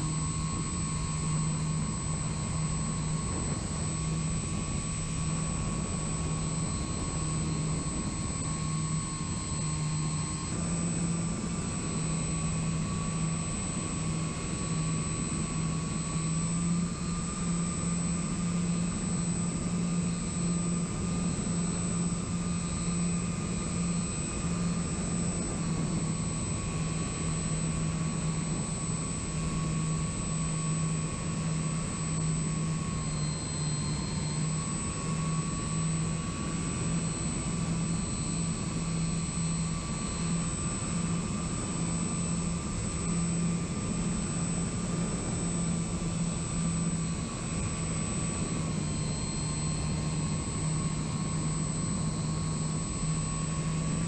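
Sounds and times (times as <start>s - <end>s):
model airplane motor drone: 0.0s - 54.0s.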